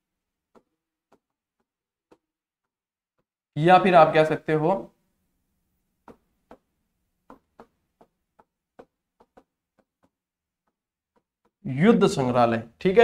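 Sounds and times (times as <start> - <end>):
stylus tapping tablet screen: 0.4 - 3.4, 5.8 - 12.4.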